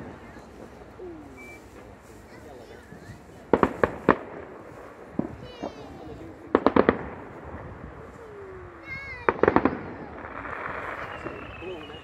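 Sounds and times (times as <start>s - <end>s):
distant fireworks bangs: 3.1s - 12.0s.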